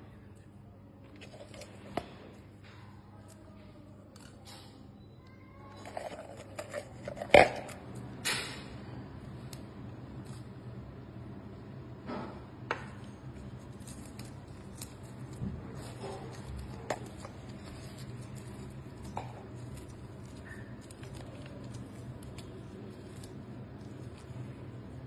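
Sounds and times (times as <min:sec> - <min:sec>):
steady low hum: 0:00.0 - 0:05.3, 0:05.9 - 0:25.0
dried chillies clicking and rustling: 0:05.8 - 0:07.8, 0:13.3 - 0:25.0.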